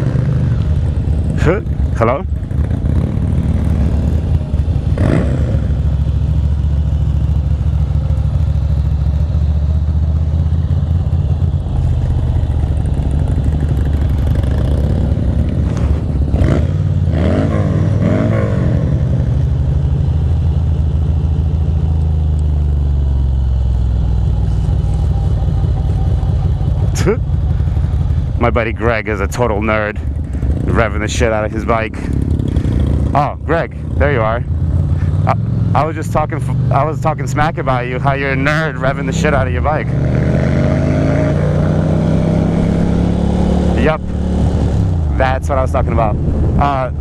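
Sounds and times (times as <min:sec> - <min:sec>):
motorcycle engine riding off: 0:00.0 - 0:45.1.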